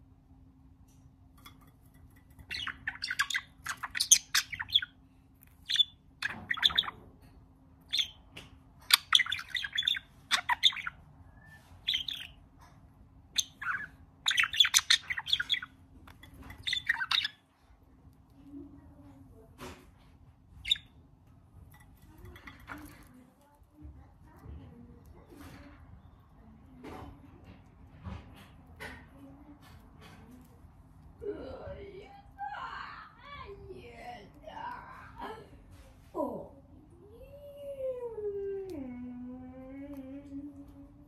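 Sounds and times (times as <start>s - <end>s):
budgerigar chirping and chattering: 2.4s - 5.0s, 5.6s - 7.0s, 7.8s - 11.0s, 11.6s - 12.4s, 13.3s - 17.4s, 20.6s - 20.9s.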